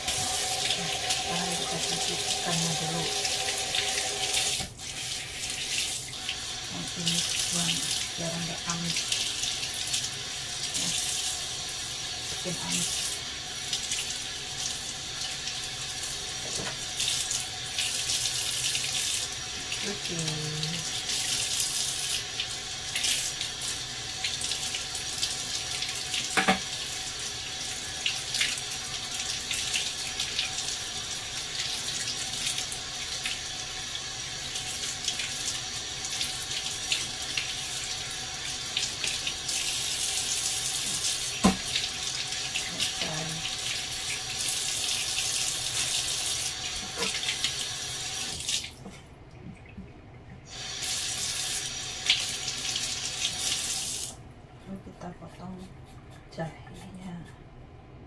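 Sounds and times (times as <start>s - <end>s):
tap water running into sink: 0.0s - 54.2s.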